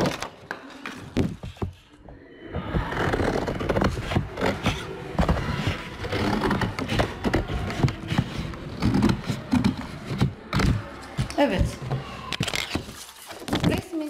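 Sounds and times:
paper rustling and scraping: 2.8s - 14.0s.

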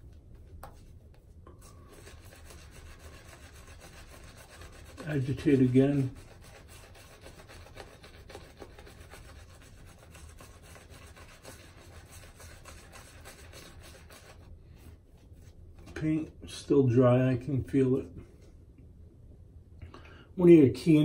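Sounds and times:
shaving brush rubbing on face: 0.7s - 15.6s.

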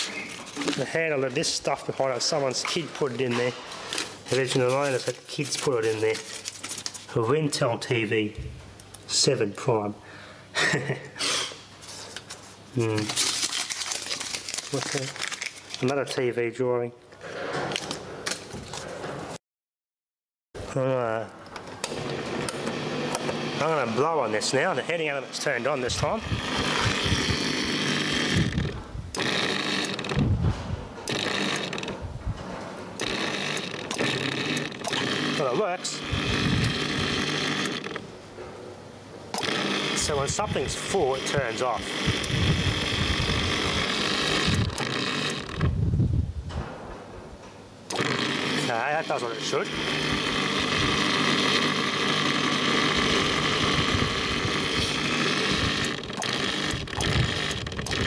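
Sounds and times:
dishwasher motor whirring hum: 21.8s - 38.6s, 39.4s - 45.8s, 47.9s - 58.0s.

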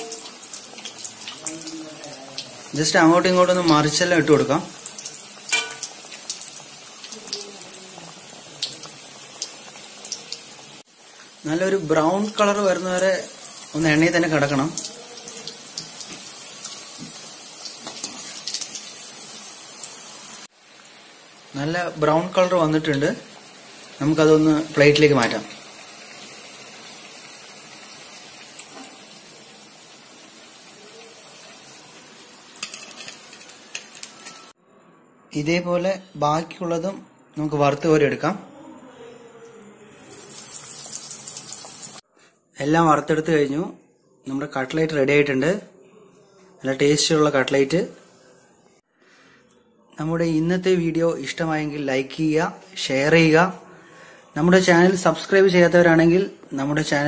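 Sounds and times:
food deep-frying in oil: 0.0s - 34.6s, 40.0s - 42.0s
skimmer clinking against pan: 5.5s - 6.0s.

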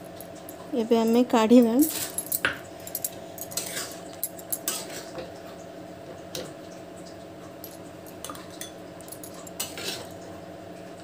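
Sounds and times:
spoon scraping a metal pot: 3.6s - 4.0s, 9.6s - 10.1s.

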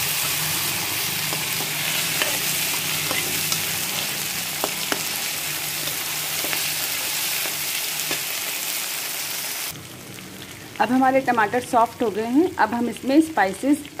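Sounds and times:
vegetables sizzling in oil: 0.0s - 14.0s
metal spoon scraping pan: 1.2s - 8.3s.

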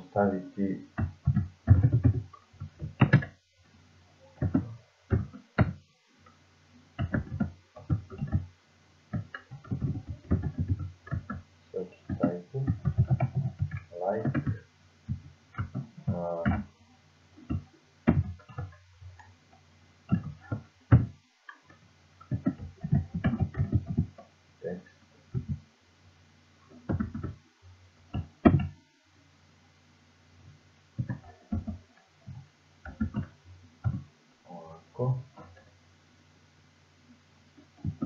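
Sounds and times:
keyboard typing clicks: 1.0s - 3.3s, 9.1s - 11.4s.

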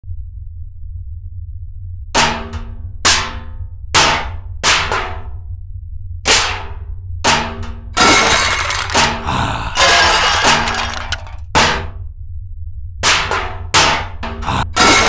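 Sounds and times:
steady low hum: 0.0s - 15.0s
metal pots and pans clanging: 7.3s - 11.9s, 13.0s - 15.0s.

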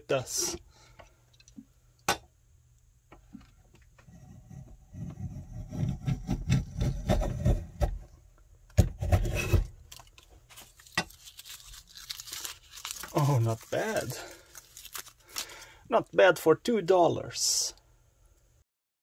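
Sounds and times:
block plane cutting wood: 4.2s - 8.0s.

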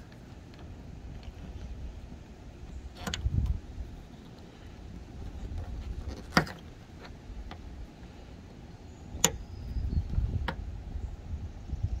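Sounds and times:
wind rumble on microphone: 0.7s - 6.6s, 8.9s - 12.0s.

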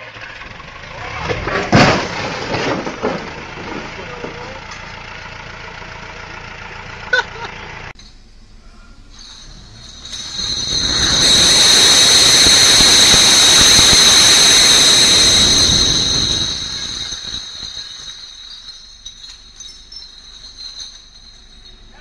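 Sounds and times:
forklift engine running: 0.0s - 8.0s, 9.4s - 18.0s
glass bottles crashing and smashing: 1.3s - 4.4s, 9.1s - 22.0s
high ringing: 9.1s - 22.0s.

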